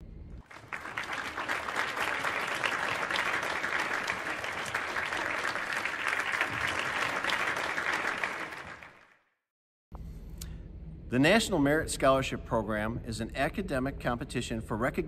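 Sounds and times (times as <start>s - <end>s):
crowd applauding: 0.4s - 9.3s.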